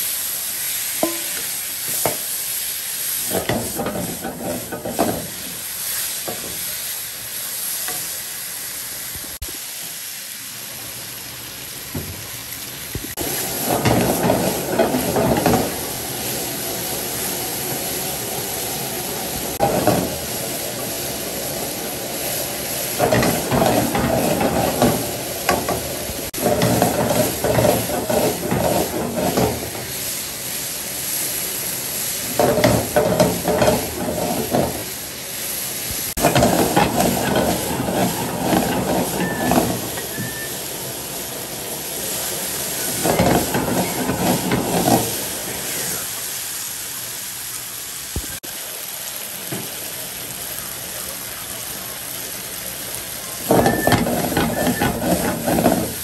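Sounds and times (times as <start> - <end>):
utensil scraping and clattering in pan: 0.0 - 6.9, 13.1 - 18.3, 19.0 - 30.5, 31.1 - 35.2, 36.1 - 40.6, 42.1 - 46.0, 53.4 - 56.0
stir-fry sizzling in a hot pan: 0.0 - 56.0.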